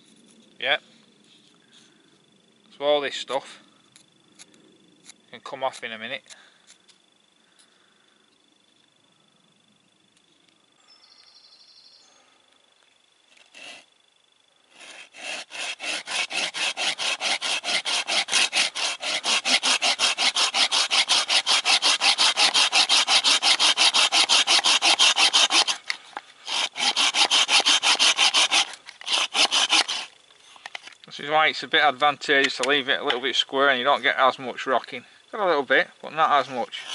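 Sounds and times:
hand saw cutting wood: 13.4 - 13.9, 14.7 - 30.1, 36.5 - 36.9.

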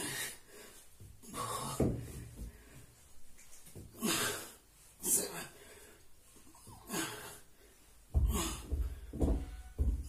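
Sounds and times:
man breathing hard: 0.0 - 3.1, 3.9 - 9.3
forceful exhalations: 6.7 - 9.9.

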